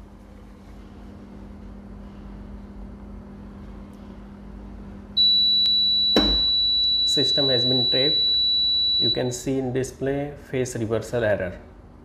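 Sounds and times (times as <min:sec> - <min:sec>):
high-pitched alarm buzzer: 0:05.2 - 0:09.4.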